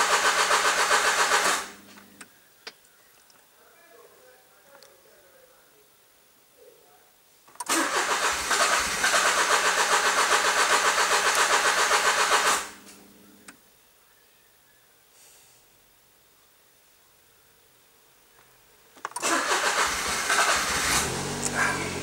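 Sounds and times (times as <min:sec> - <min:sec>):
car engine cranking on starter: 0:00.0 - 0:01.8, 0:07.6 - 0:12.8, 0:19.1 - 0:22.0.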